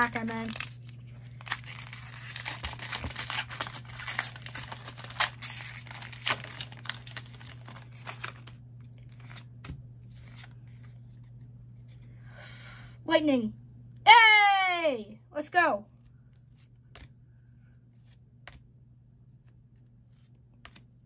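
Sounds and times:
wrapper tearing and crinkling: 0.0 - 8.6.

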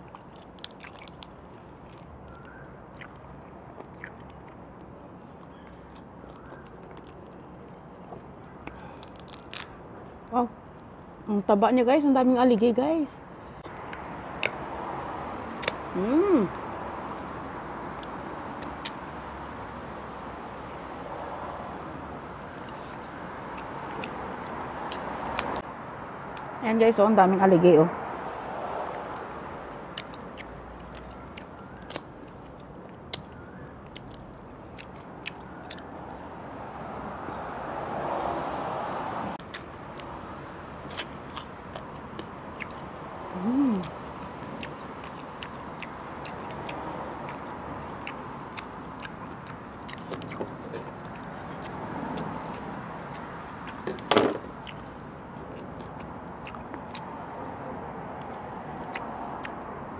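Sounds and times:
person chewing with wet clicks: 0.0 - 9.8, 13.6 - 14.7, 15.6 - 15.9, 17.9 - 19.0, 20.7 - 25.7, 28.8 - 36.3, 39.4 - 59.9
sharp snap: 15.6 - 15.9.

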